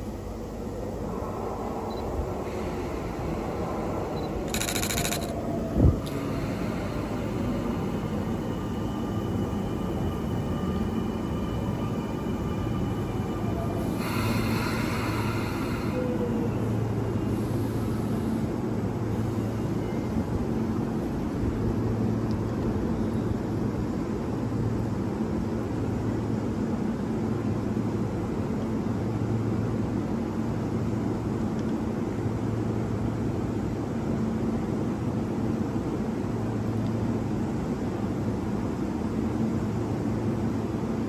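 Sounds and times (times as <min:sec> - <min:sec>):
faint whining tones: 0:00.0 - 0:18.3
train low rumble and hum: 0:00.0 - 0:41.0.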